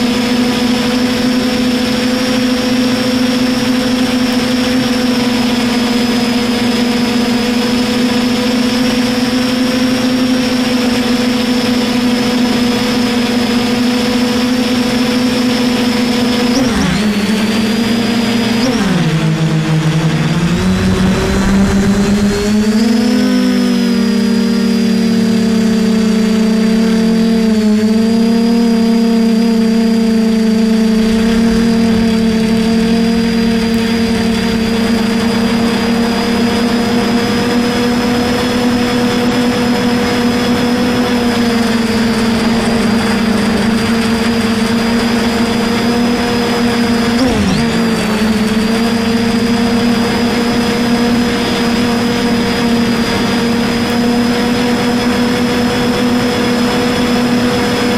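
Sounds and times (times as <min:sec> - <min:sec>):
drone propellers humming: 0:00.0 - 0:57.9
thin high whine: 0:00.0 - 0:57.9.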